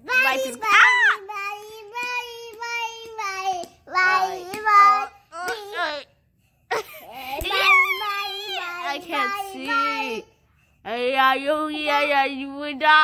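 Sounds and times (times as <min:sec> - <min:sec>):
child singing: 0:00.0 - 0:05.8.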